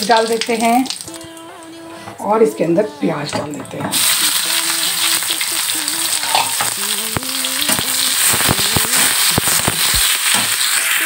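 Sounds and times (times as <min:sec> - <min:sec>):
onions sizzling in hot oil: 0:03.9 - 0:11.0
metal spatula scraping pan: 0:06.2 - 0:06.7.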